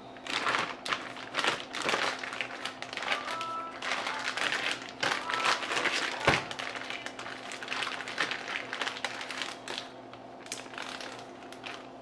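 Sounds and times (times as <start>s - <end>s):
plastic bag crinkling and rustling: 0.2s - 12.0s.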